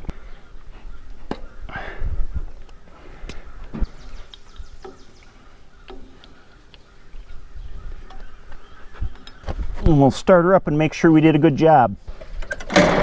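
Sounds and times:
sharp clicks and knocks: 0:05.8 - 0:06.8.

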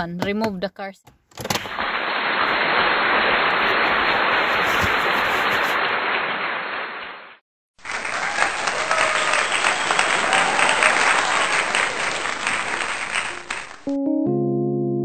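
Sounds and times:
steady hiss: 0:01.6 - 0:06.4, 0:07.9 - 0:13.9
clapping: 0:01.7 - 0:07.2, 0:07.8 - 0:13.9.

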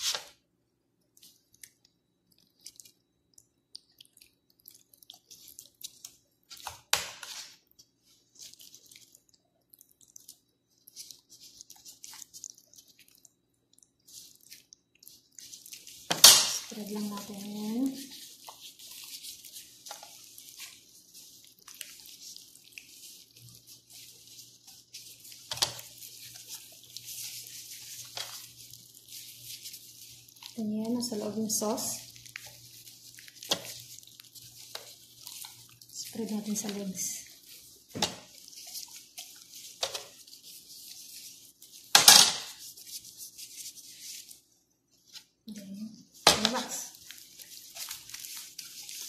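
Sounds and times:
gloved hands squishing raw chicken: 0:00.0 - 0:49.0.

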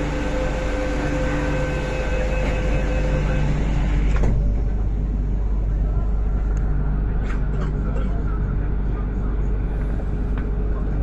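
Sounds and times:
train doors shutting: 0:00.0 - 0:05.0
station noise: 0:00.0 - 0:07.1
train interior hum: 0:00.0 - 0:11.0.

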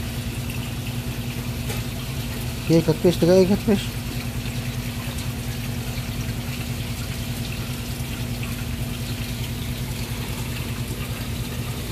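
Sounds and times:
low pulsing mechanical hum: 0:00.0 - 0:11.9
water running and splashing: 0:00.0 - 0:11.9.

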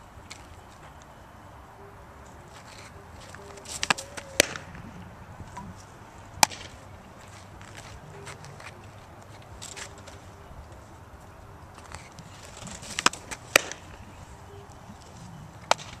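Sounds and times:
ball caught in glove: 0:03.8 - 0:04.7, 0:13.0 - 0:13.8
ball popping into leather mitt: 0:03.8 - 0:04.8, 0:12.7 - 0:13.9.

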